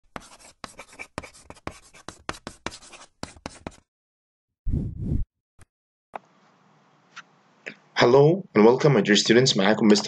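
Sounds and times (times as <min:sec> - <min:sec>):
pen scratching handwriting: 0:00.2 - 0:03.8.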